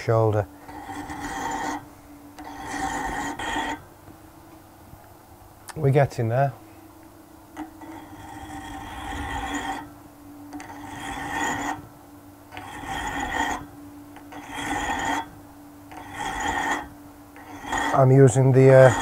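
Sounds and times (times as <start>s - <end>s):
lathe humming: 0.0s - 4.0s, 7.6s - 19.0s
file rasping against steel: 0.6s - 3.8s, 7.8s - 9.9s, 10.6s - 11.9s, 12.5s - 19.0s.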